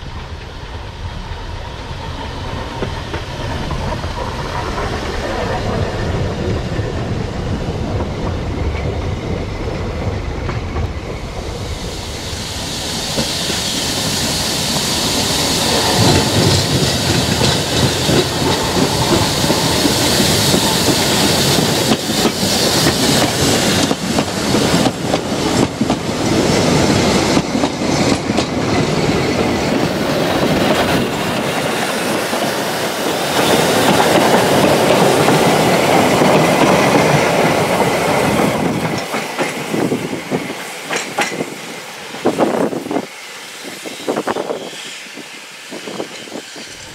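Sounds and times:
steam hissing: 0:00.0 - 0:46.9
steam locomotive running past: 0:00.0 - 0:46.9
wheels clicking over rail joints: 0:33.4 - 0:41.6.

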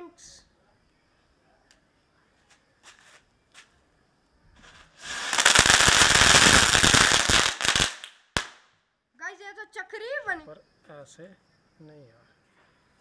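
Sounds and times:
firecracker fizzing and crackling: 0:04.6 - 0:08.7.

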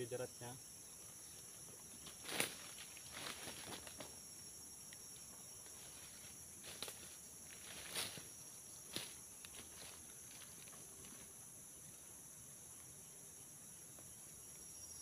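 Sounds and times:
footsteps crunching through dry leaves: 0:02.1 - 0:04.1, 0:05.8 - 0:10.9.

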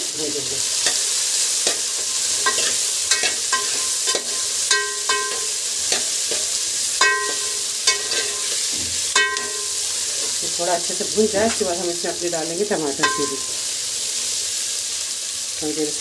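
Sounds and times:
vegetables sizzling in hot oil: 0:00.0 - 0:16.0
spoon striking metal pot: 0:01.6 - 0:10.4, 0:13.0 - 0:13.6.

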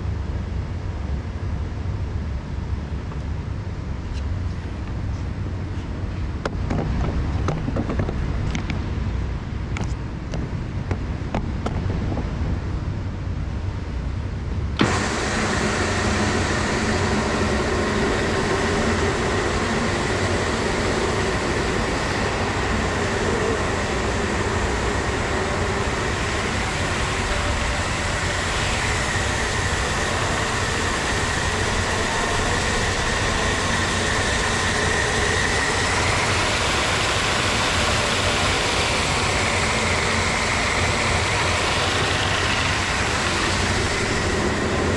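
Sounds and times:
floor scrubber motor whine: 0:14.8 - 0:44.9.

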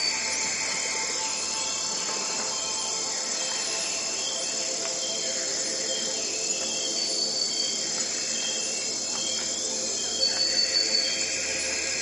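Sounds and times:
crickets chirping: 0:00.0 - 0:12.0
music drone of sustained tones: 0:00.0 - 0:12.0.

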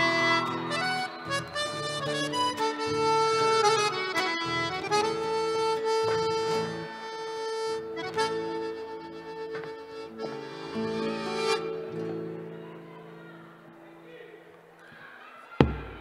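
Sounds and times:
accordion holding long notes: 0:00.0 - 0:12.2.

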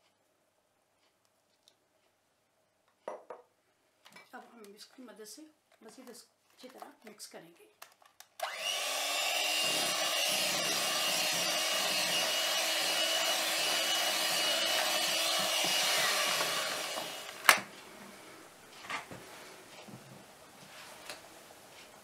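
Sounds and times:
electric mixer whirring: 0:08.4 - 0:17.6.

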